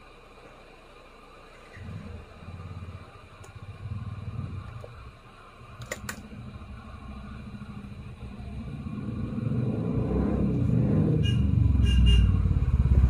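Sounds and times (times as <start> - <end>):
hot air gun rumble: 1.8 - 11.4.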